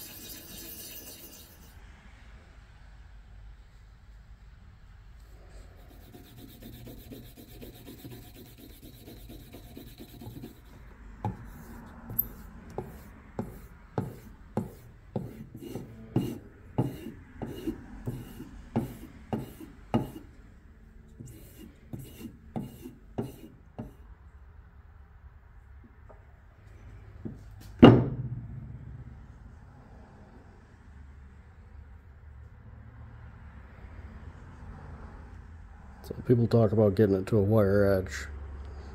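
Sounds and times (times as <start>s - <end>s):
axe stropping on leather: 5.6s - 20.3s, 21.2s - 23.5s
compound rubbed on leather strop: 5.6s - 20.3s, 21.1s - 24.0s.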